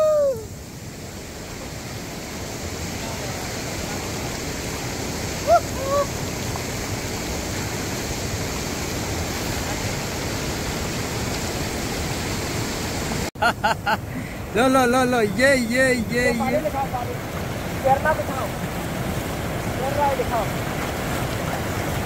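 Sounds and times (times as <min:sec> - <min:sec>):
river water rushing over rocks: 0:00.0 - 0:22.0
person shouting: 0:14.5 - 0:16.7.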